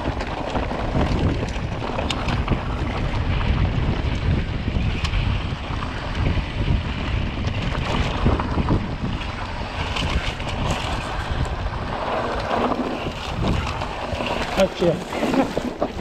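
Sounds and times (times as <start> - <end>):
bike rattles and clicks: 0.0 - 16.0
bike tyres crunching on gravel: 0.0 - 16.0
wind buffeting microphone: 0.0 - 16.0.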